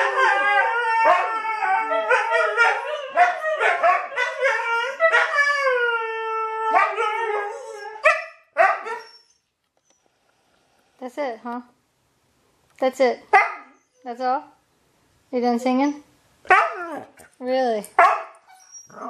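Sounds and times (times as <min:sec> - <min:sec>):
dog yelping: 0:00.0 - 0:05.8, 0:06.6 - 0:09.5, 0:13.3 - 0:14.0, 0:16.5 - 0:17.2, 0:18.0 - 0:19.0
dog howling: 0:00.0 - 0:08.2.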